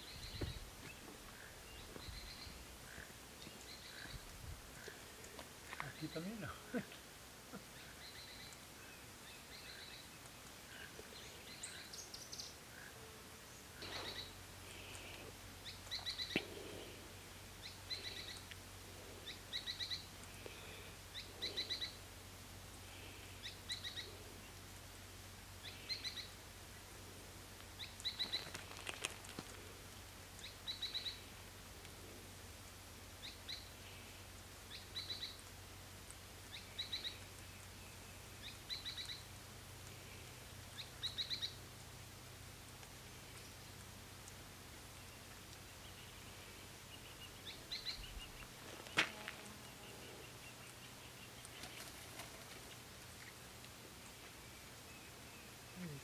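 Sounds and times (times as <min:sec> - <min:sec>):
bird chirping: 0:00.0 - 0:16.9, 0:17.6 - 0:18.5, 0:19.2 - 0:22.0, 0:23.3 - 0:24.6, 0:25.6 - 0:26.4, 0:27.8 - 0:28.9, 0:30.4 - 0:31.3, 0:34.7 - 0:35.4, 0:36.5 - 0:39.3, 0:40.7 - 0:41.6, 0:45.0 - 0:53.4
faint clicks: 0:18.0 - 0:18.6, 0:27.6 - 0:30.5.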